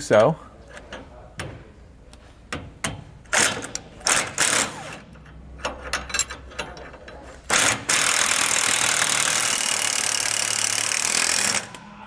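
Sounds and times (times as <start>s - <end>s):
impact wrench hammering: 2.5s - 6.9s, 7.5s - 11.8s.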